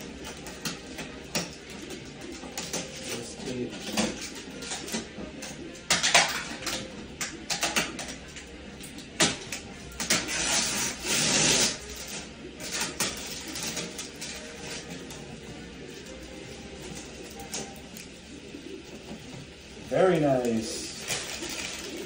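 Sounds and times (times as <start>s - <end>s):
plastic wrap crinkling: 9.9s - 18.0s, 19.8s - 22.0s.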